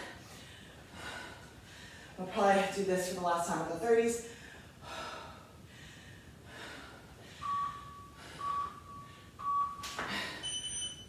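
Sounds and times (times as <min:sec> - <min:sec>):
longer high-pitched beep: 0:07.4 - 0:11.0
timer beeps: 0:07.4 - 0:11.0.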